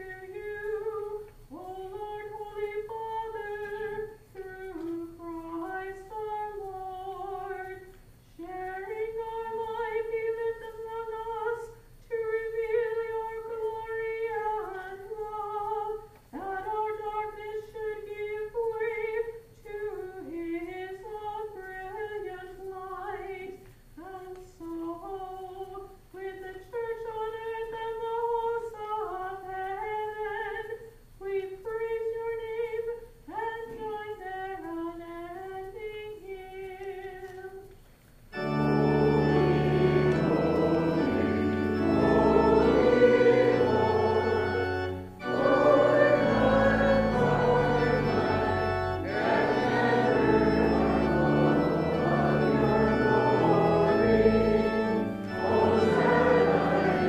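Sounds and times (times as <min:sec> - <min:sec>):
congregation singing: 0:00.0 - 0:34.7, 0:35.3 - 0:57.0
woman singing a chant: 0:00.0 - 0:37.7
church organ: 0:00.0 - 0:57.0.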